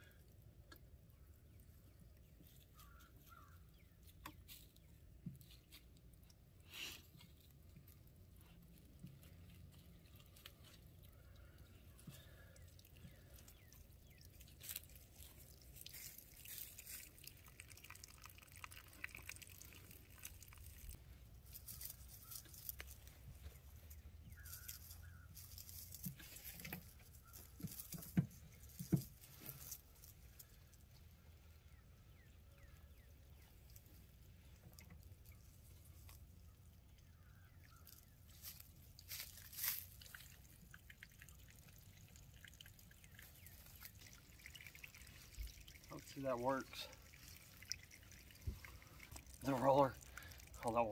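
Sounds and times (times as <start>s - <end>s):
dry leaves rustling and crackling: 14.4s - 30.7s, 37.2s - 40.6s.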